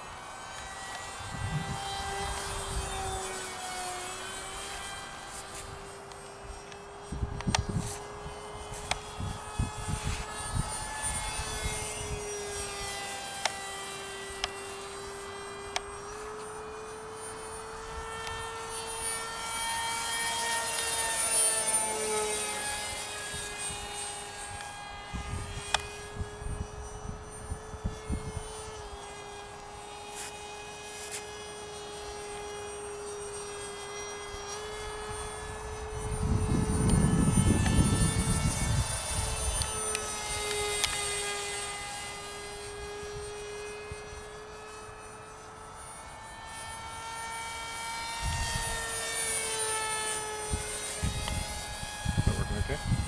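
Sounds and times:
model plane motor whine: 0:00.0 - 0:53.0
wind on microphone: 0:01.2 - 0:03.2, 0:07.0 - 0:12.2, 0:25.0 - 0:28.6, 0:35.1 - 0:39.8, 0:48.2 - 0:48.9, 0:50.5 - 0:53.0.

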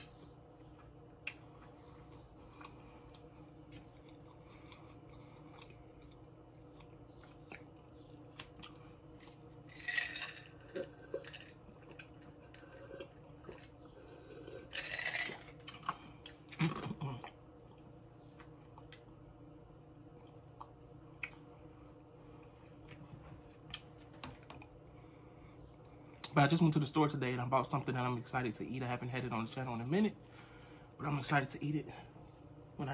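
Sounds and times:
person chewing wetly: 0:00.8 - 0:19.1, 0:20.1 - 0:21.6.

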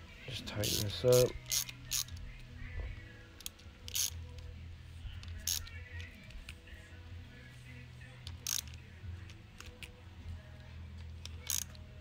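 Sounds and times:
socket ratchet clicking: 0:00.6 - 0:02.2, 0:03.4 - 0:04.5, 0:05.1 - 0:06.6, 0:08.2 - 0:10.0, 0:11.0 - 0:12.0.

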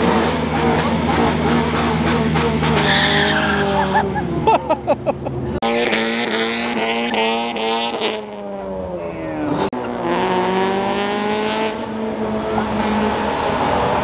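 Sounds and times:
car engines revving: 0:00.0 - 0:14.0
tyre squeal: 0:02.8 - 0:04.0.

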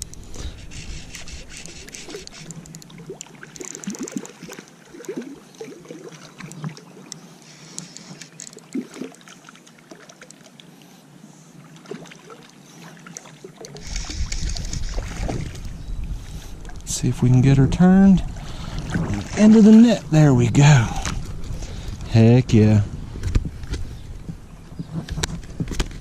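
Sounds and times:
wind rumble on microphone: 0:00.0 - 0:02.4, 0:13.8 - 0:26.0
fish splashing and thrashing in water: 0:00.0 - 0:10.6, 0:11.8 - 0:15.8
small clicks and gurgles: 0:00.0 - 0:10.6, 0:12.4 - 0:15.8, 0:24.8 - 0:26.0.

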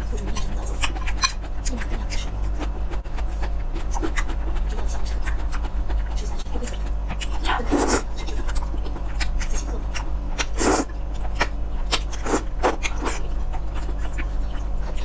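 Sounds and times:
steady low hum: 0:00.0 - 0:15.0
wet chewing and mouth clicks: 0:00.2 - 0:15.0.

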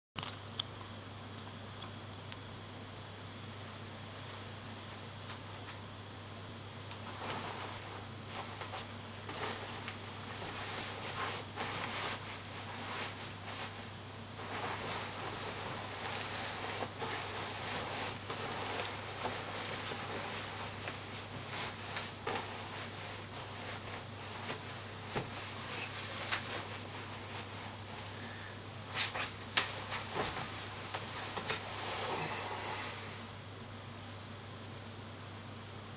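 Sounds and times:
steady low hum: 0:00.2 - 0:35.9
bedding rustling: 0:06.8 - 0:32.6.

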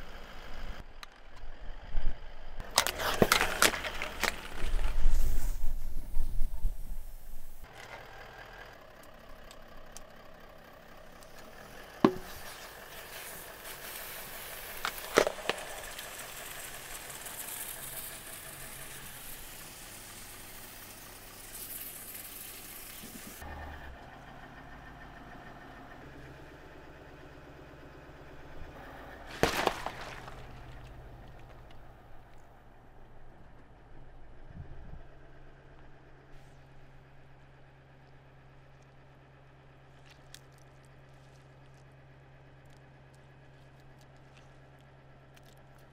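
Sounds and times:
car engine idling: 0:00.0 - 0:45.9
sharp cracks under tyre: 0:02.6 - 0:05.3, 0:11.1 - 0:23.3, 0:29.1 - 0:32.6, 0:38.6 - 0:45.9
watermelon bursting with crunches: 0:12.0 - 0:19.1, 0:29.2 - 0:31.6.

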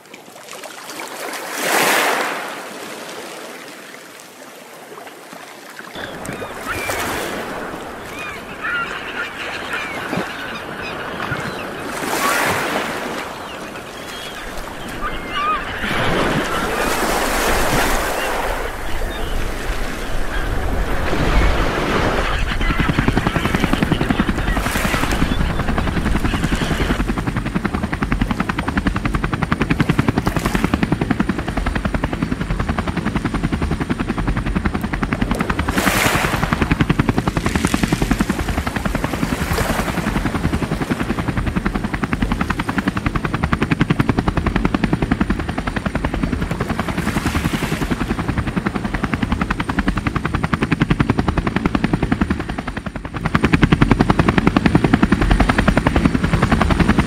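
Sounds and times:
water rushing: 0:00.0 - 0:10.6, 0:11.4 - 0:22.3
wind: 0:00.0 - 0:57.0.

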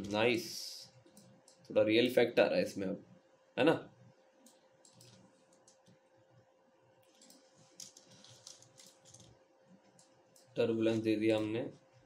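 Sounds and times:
faint steady hum: 0:00.0 - 0:12.0
keyboard and mouse clicks: 0:04.4 - 0:06.0, 0:07.0 - 0:09.3, 0:09.9 - 0:10.6.

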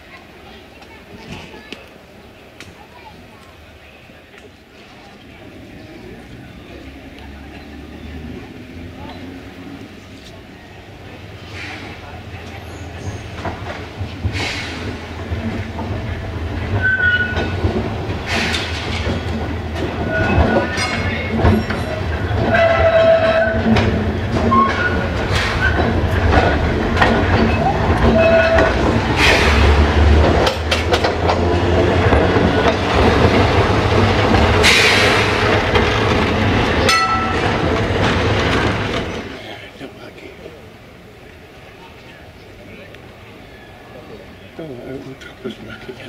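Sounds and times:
tram humming: 0:00.0 - 0:46.0
wheels clicking over rail joints: 0:11.2 - 0:39.7.

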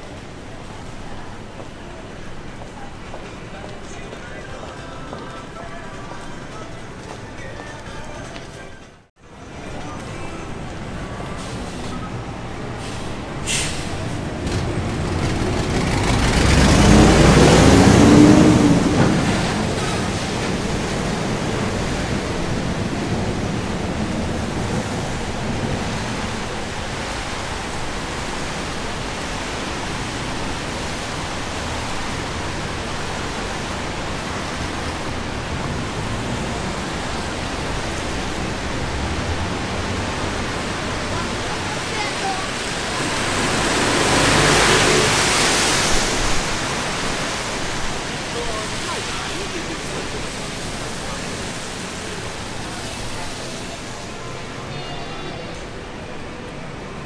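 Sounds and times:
rain on a street: 0:09.2 - 0:57.0
vehicle passing on wet road: 0:12.4 - 0:54.7.

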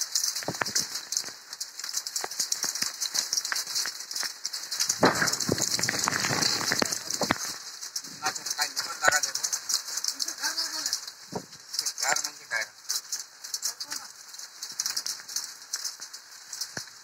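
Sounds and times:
raindrops ticking: 0:00.0 - 0:17.0.

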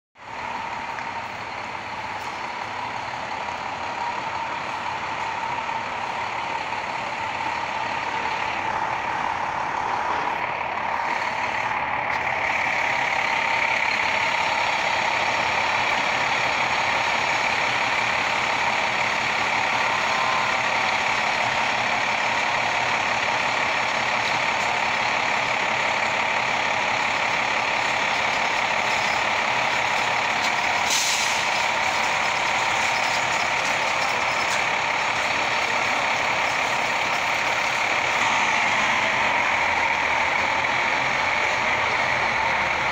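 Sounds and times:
fire engine diesel engine running: 0:00.2 - 0:42.9
air brake hiss: 0:30.8 - 0:31.6.

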